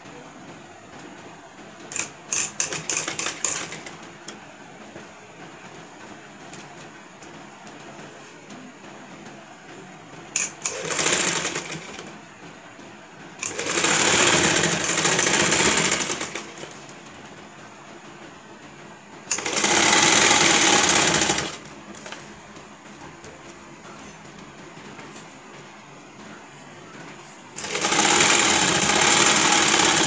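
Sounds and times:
sewing machine stitching: 1.9s - 4.0s, 10.3s - 12.1s, 13.4s - 16.9s, 19.3s - 22.2s, 27.6s - 30.0s.

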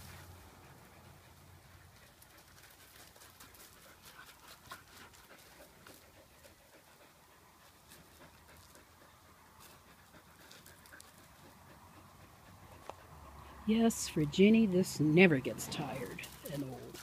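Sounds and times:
dog panting: 0.0s - 13.9s
gravel crunching under paws: 1.3s - 7.0s, 7.6s - 13.3s, 15.5s - 17.0s.

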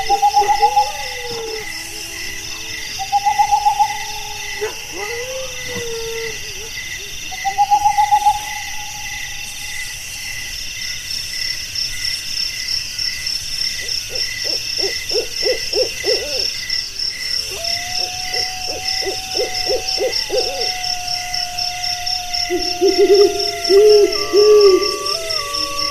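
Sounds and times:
owl hooting: 0.0s - 5.1s, 14.4s - 16.6s, 17.4s - 25.9s
insects chirping: 0.0s - 25.9s.

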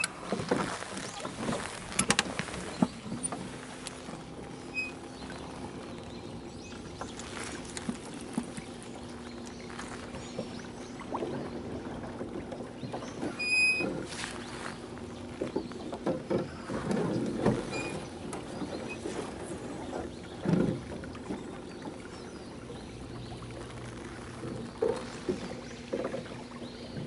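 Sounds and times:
electric trolling motor humming: 0.0s - 27.0s
knocks against boat: 15.4s - 22.0s.

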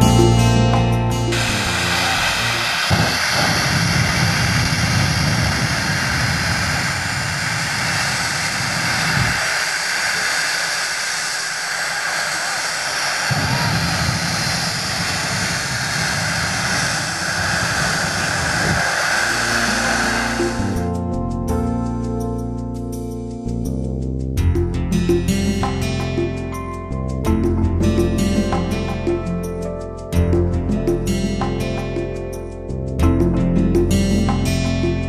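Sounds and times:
jet engine afterburner roaring: 1.3s - 21.0s.

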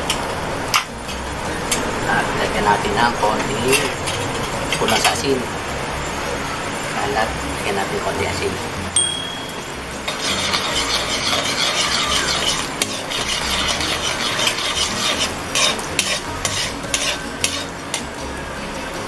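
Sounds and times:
sauce sizzling in a pan: 9.7s - 18.1s
metal spoon scraping a wok: 10.0s - 18.0s.

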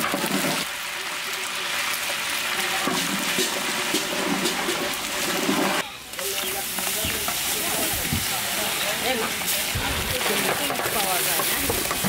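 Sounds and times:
paste sizzling in hot oil: 0.0s - 12.0s.

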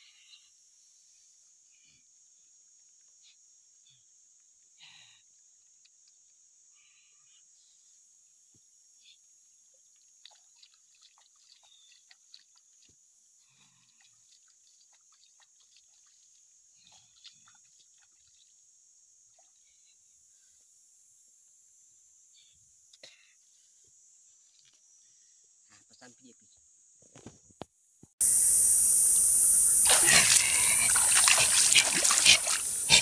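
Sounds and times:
faint high hiss: 28.2s - 33.0s.

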